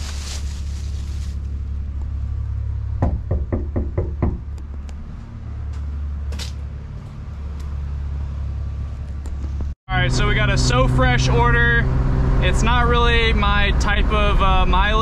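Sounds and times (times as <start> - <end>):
low rumble: 0.0 - 15.0
knuckles knocking on door: 3.0 - 4.4.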